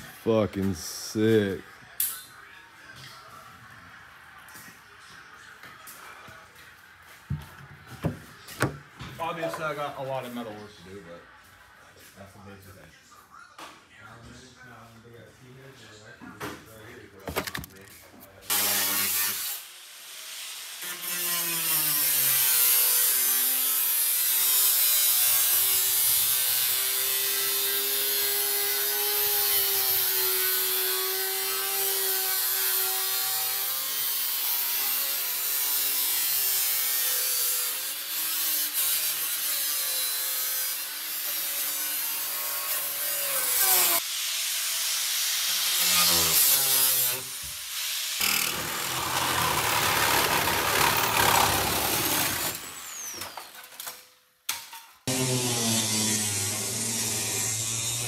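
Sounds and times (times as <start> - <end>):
angle grinder cutting metal: 18.5 - 54.0, 55.1 - 58.0.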